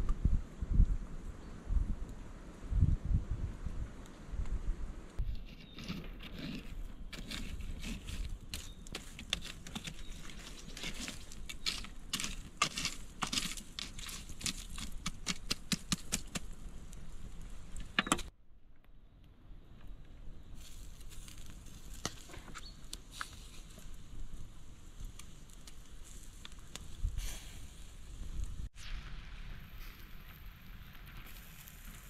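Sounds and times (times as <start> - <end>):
wood fire crackling and popping: 6.8 - 18.3, 20.6 - 32.0.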